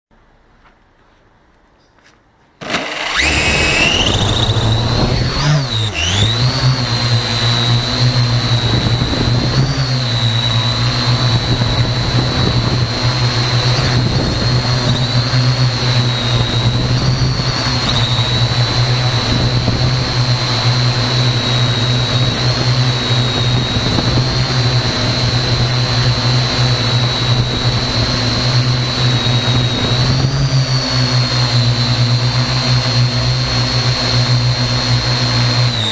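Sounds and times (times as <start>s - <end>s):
drone motors whining: 2.6s - 35.9s.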